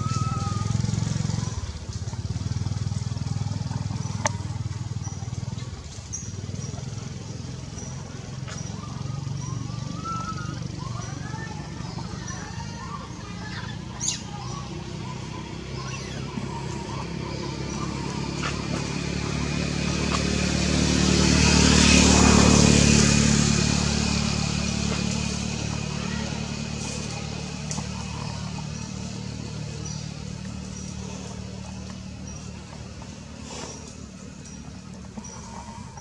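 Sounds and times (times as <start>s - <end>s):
vehicle driving past: 14.3s - 36.0s.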